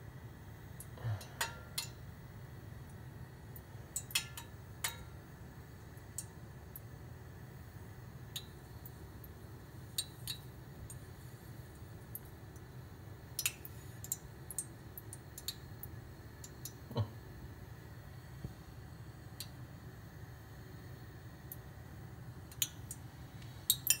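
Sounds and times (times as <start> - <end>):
gas burner rumble: 0.0 - 8.0.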